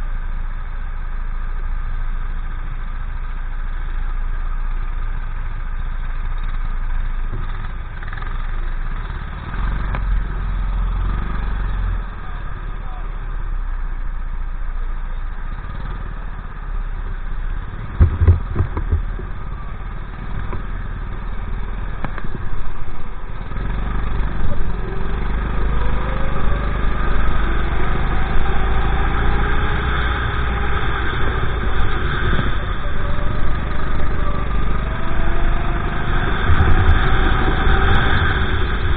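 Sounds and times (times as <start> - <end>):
kart engine idling: 0.0 - 38.9
other karts running: 4.7 - 14.1, 14.7 - 38.9
sharp knocks: 18.0 - 19.3.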